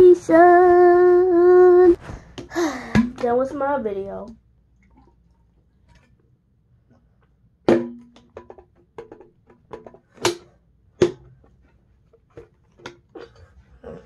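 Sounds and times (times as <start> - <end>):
plastic bottle clicks and knocks: 2.4 - 3.3, 7.7 - 11.4, 12.3 - 13.3.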